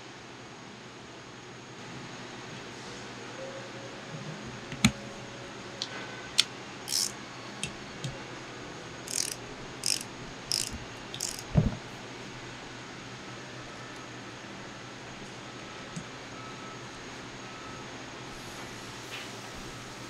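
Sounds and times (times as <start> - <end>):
torque wrench ratcheting: 6.9 - 7.2, 9.1 - 11.6
sharp metallic clicks: 6.9 - 7.8, 9.1 - 11.5.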